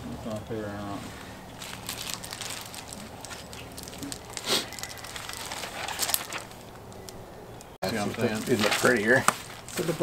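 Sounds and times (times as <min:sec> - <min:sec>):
packing paper crinkling: 0:01.6 - 0:07.1, 0:07.9 - 0:10.0.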